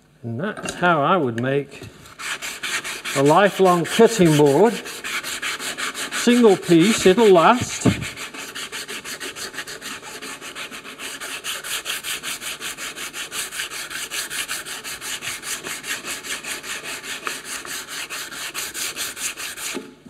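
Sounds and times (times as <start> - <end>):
sandpaper rubbing on wood: 2.1 - 19.8.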